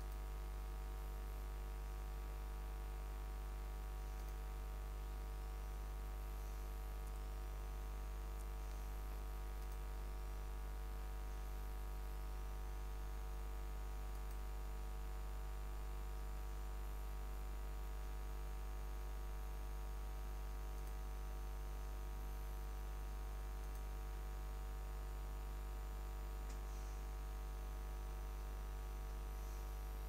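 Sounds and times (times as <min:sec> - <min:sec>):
low electrical hum: 0:00.0 - 0:30.0
faint mouse clicks: 0:04.0 - 0:04.5, 0:06.5 - 0:07.2, 0:08.3 - 0:09.9, 0:14.1 - 0:14.5, 0:20.8 - 0:21.0, 0:23.6 - 0:23.9, 0:26.4 - 0:27.0.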